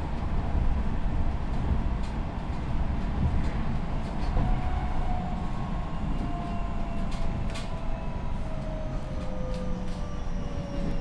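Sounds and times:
wheels rumbling on rail: 0.0 - 11.0.

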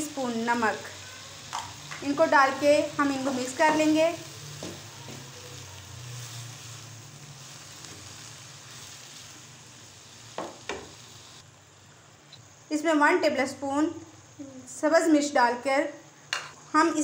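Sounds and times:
vegetables sizzling in oil: 0.0 - 17.0
wooden spatula stirring: 1.5 - 9.5.

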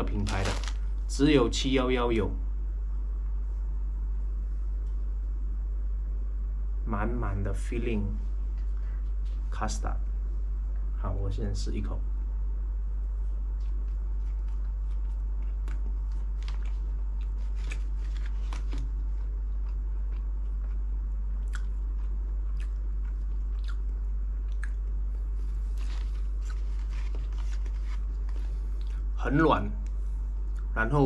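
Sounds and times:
low hum: 0.0 - 31.0
person chewing cake: 13.5 - 29.2, 30.4 - 30.8.

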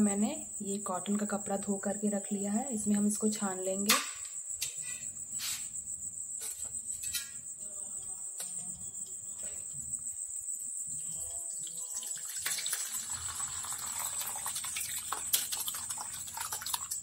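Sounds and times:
liquid splashing and gurgling: 11.8 - 17.0.

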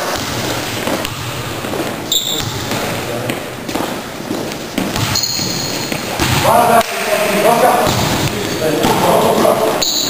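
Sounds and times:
basketball bouncing on wooden court: 0.0 - 6.6, 7.8 - 10.0
players' voices echoing: 0.0 - 10.0
high squeaks: 2.0 - 2.7, 5.0 - 6.2, 8.2 - 10.0.

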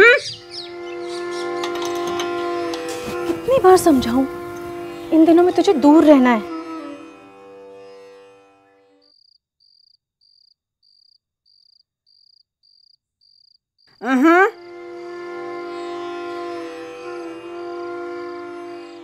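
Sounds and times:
background music: 0.0 - 8.8, 14.0 - 19.0
sustained drone: 0.3 - 7.7, 14.5 - 19.0
sharply rising musical note: 0.3 - 8.6
cricket chirping: 9.0 - 14.8.

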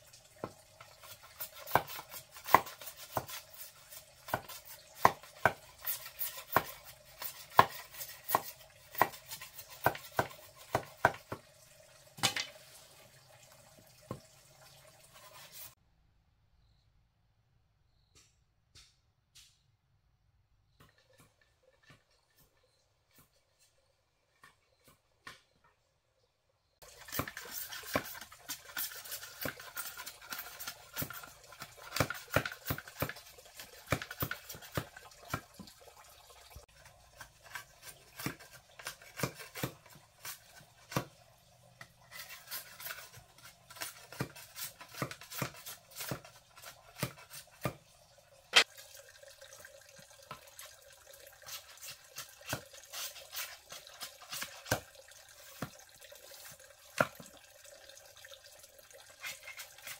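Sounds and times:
knife scraping bamboo: 26.9 - 34.8, 42.0 - 47.7, 51.4 - 54.8, 59.2 - 59.9.

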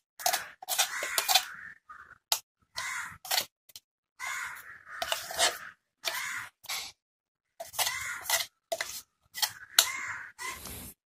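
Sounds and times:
batter scraped from steel jar: 0.2 - 1.6, 5.0 - 7.0, 7.6 - 11.0.

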